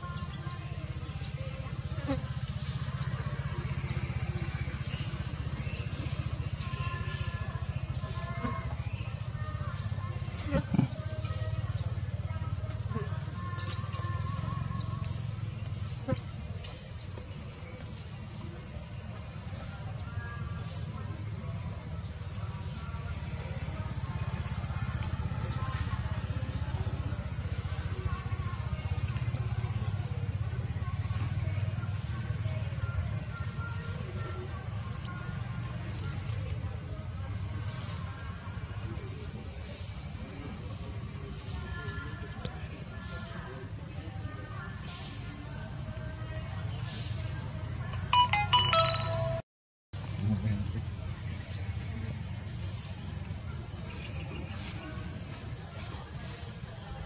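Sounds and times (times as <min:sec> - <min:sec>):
small engine running: 0:50.0 - 0:53.7.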